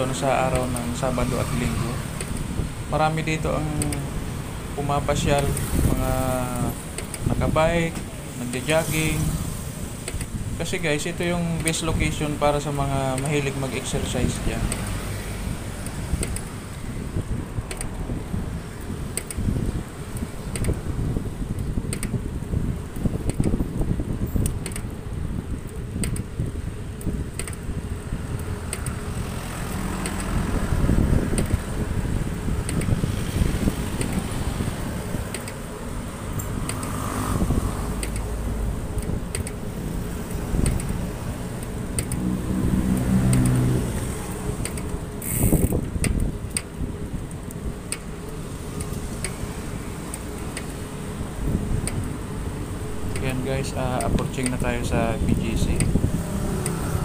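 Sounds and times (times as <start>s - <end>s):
passing vehicle engine hum: 0.0s - 21.5s, 26.3s - 57.0s
wind buffeting microphone: 0.0s - 57.0s
small clicks and rattles: 24.4s - 25.0s, 25.6s - 26.3s, 27.0s - 27.7s, 35.2s - 35.6s, 38.0s - 38.3s, 40.2s - 42.3s, 43.3s - 49.4s
light clicks: 27.0s - 27.6s, 38.0s - 38.3s, 40.2s - 41.0s, 41.6s - 42.2s.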